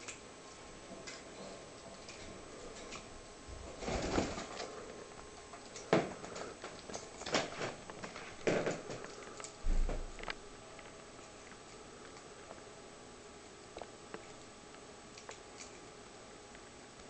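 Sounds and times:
soft rustles and crackles: 0:00.4 - 0:12.7.

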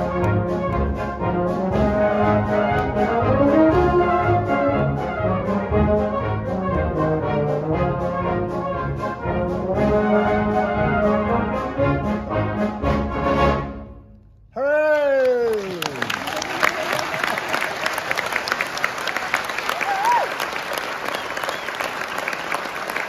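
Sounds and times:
military brass band march: 0:00.0 - 0:14.0.

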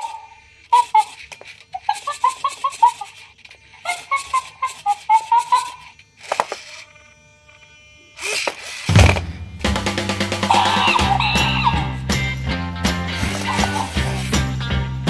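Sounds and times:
toy electronic hooting: 0:00.0 - 0:09.0, 0:10.4 - 0:12.1, 0:13.1 - 0:14.3.

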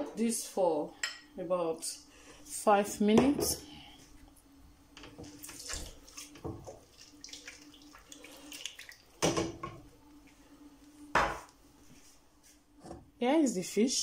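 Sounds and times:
water pouring into metal pot: 0:05.3 - 0:09.2.

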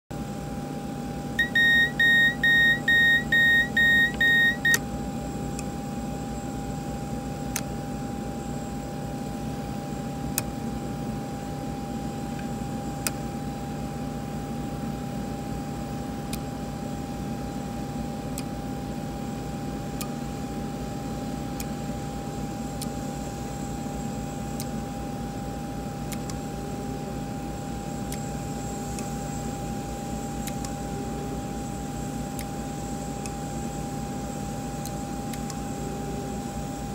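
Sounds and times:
electrical hum with whine: 0:00.1 - 0:36.9
electronic warning beeps: 0:01.4 - 0:04.8.

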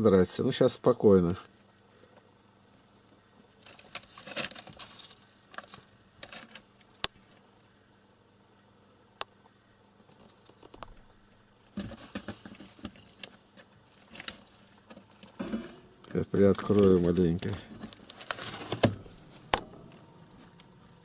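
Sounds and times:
small animal scratching and rustling: 0:02.9 - 0:07.5, 0:10.0 - 0:20.6.

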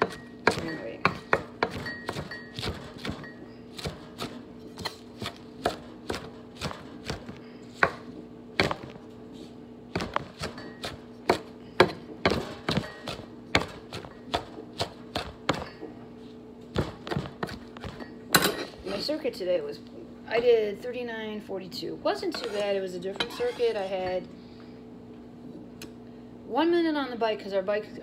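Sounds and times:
knife chopping on wooden board: 0:00.0 - 0:09.0, 0:10.0 - 0:15.8, 0:16.7 - 0:18.0.

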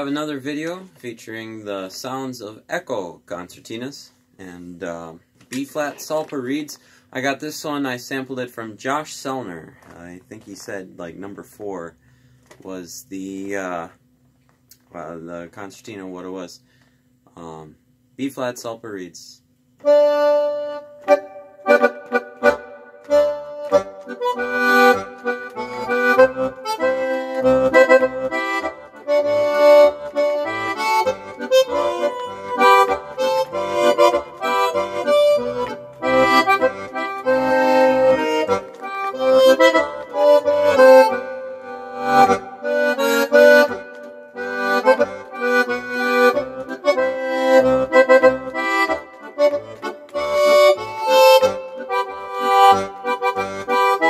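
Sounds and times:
lively accordion tune: 0:00.0 - 0:01.9, 0:19.8 - 0:54.0
accordion bass notes: 0:00.0 - 0:12.0, 0:19.8 - 0:54.0.

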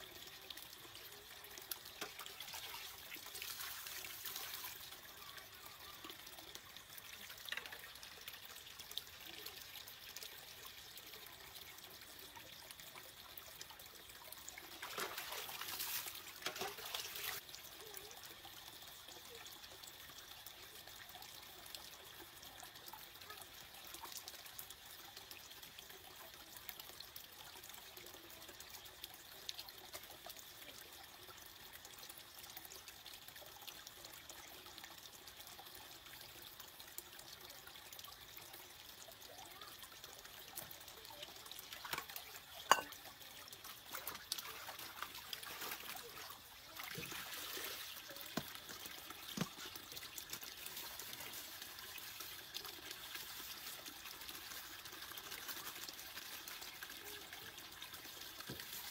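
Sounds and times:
stream trickling over rocks: 0:00.0 - 0:58.9
splashing clothes in metal basin: 0:14.7 - 0:17.4, 0:43.8 - 0:52.2.

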